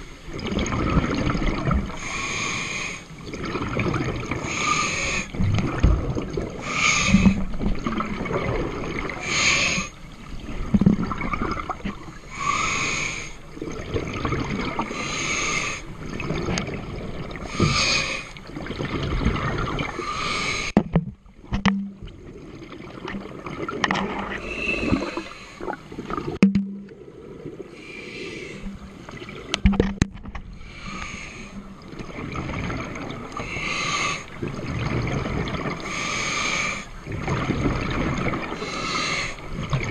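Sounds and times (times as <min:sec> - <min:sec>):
exhaust bubbles gurgling: 0:00.0 - 0:02.1, 0:03.2 - 0:12.2, 0:13.5 - 0:15.0, 0:16.0 - 0:20.8, 0:28.4 - 0:33.7, 0:34.3 - 0:36.0, 0:37.0 - 0:39.9
regulator breaths hissing: 0:02.0 - 0:03.1, 0:04.4 - 0:05.3, 0:06.6 - 0:07.4, 0:09.2 - 0:10.0, 0:12.3 - 0:13.4, 0:15.0 - 0:15.8, 0:17.5 - 0:18.3, 0:20.0 - 0:20.8, 0:30.6 - 0:31.6, 0:33.4 - 0:34.3, 0:35.9 - 0:36.9, 0:38.6 - 0:39.4.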